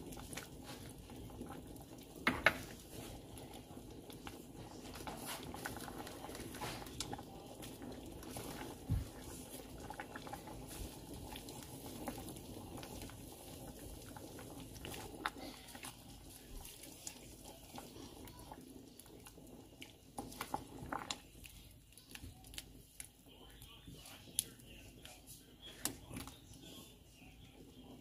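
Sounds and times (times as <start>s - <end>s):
soup bubbling in a pot: 0.0s - 28.0s
wooden spatula knocking on pot: 2.2s - 2.7s.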